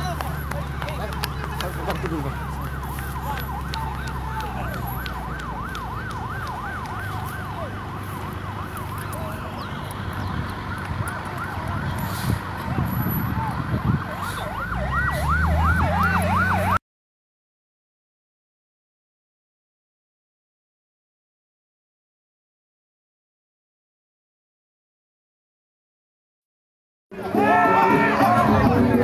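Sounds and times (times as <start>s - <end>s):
heavy vehicle engines droning: 0.0s - 16.8s, 27.2s - 29.0s
warbling siren: 0.0s - 16.8s.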